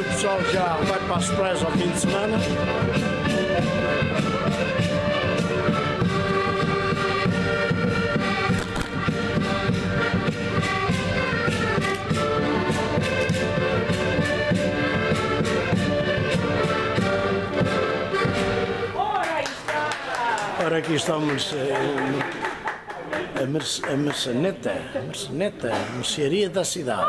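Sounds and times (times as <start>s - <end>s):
button accordions playing a tune: 0.0s - 19.0s.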